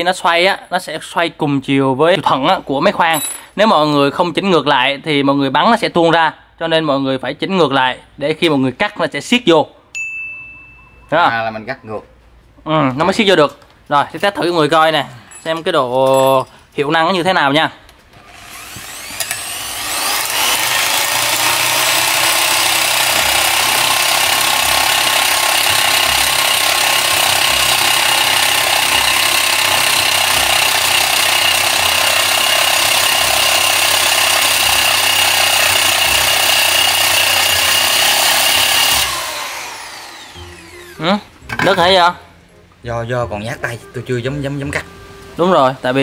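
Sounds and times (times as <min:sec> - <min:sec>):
electric drill with cutting disc: 0:18.2 - 0:41.3.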